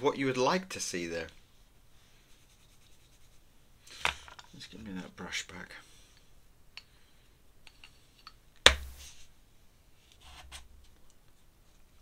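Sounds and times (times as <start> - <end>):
brush scratching across paper: 2.1 - 3.5.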